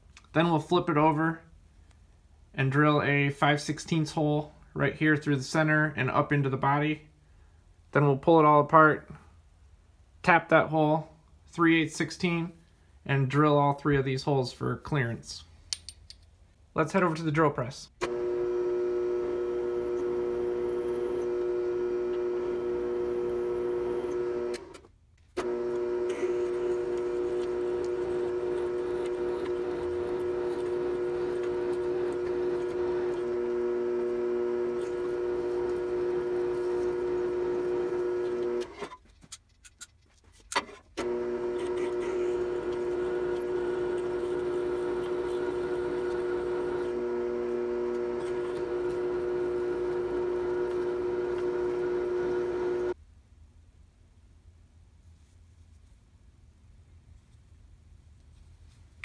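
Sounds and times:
drill press humming: 18.0 - 38.9, 41.0 - 53.0.

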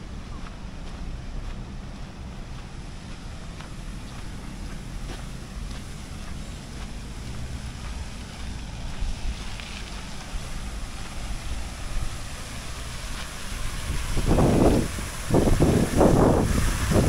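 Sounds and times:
outdoor street hiss: 0.0 - 17.0
wind buffeting microphone: 0.0 - 17.0.

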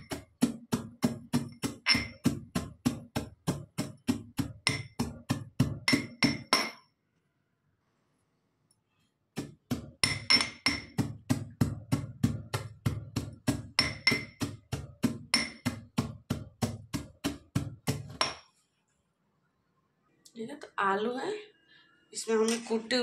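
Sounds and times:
pestle pounding in metal mortar: 0.0 - 6.8, 9.4 - 18.4.

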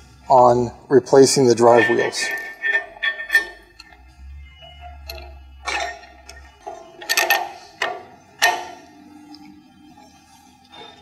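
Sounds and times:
metal clinks and knocks: 1.6 - 9.0.

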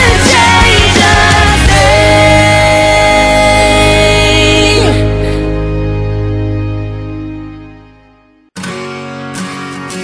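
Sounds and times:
pop song chord ringing out: 0.0 - 8.4.

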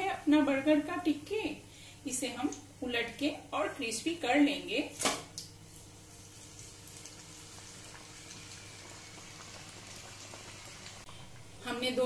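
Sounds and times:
oil sizzling and bubbling: 5.3 - 12.0
food deep-frying in oil: 5.7 - 12.0.

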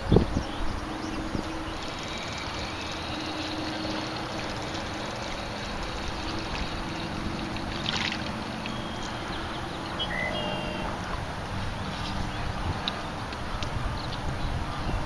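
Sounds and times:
wind: 0.0 - 15.0
small waves lapping: 1.2 - 12.2.

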